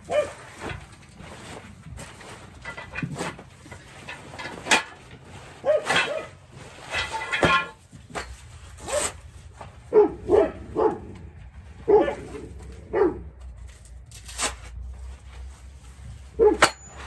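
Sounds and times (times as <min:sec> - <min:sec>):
dog barking: 0:00.1 - 0:00.4, 0:05.6 - 0:06.3, 0:09.9 - 0:11.1, 0:11.8 - 0:13.3, 0:16.4 - 0:16.6.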